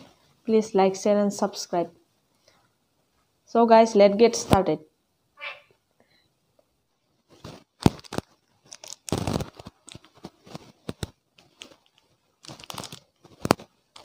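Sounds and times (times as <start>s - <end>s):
plastic wrappers crinkling: 7.3s - 14.0s.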